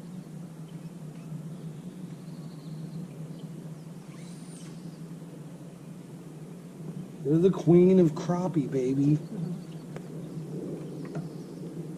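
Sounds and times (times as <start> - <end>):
steady low hum: 0.0 - 11.9
short bird chirps: 4.0 - 5.1.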